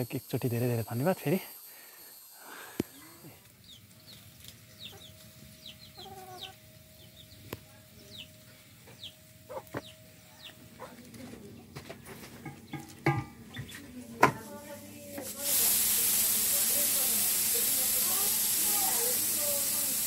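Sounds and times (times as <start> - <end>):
chickens clucking: 4.8 - 13.9.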